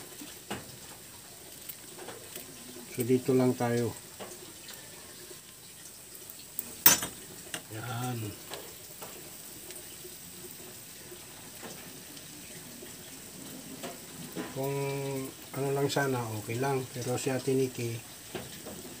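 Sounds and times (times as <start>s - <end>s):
noodles sizzling in a pan: 0.0s - 19.0s.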